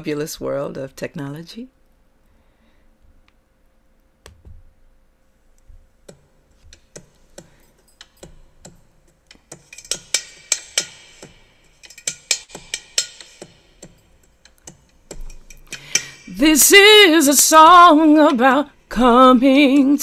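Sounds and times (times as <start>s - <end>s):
sharp irregular clicks and taps: 5.6s - 16.3s.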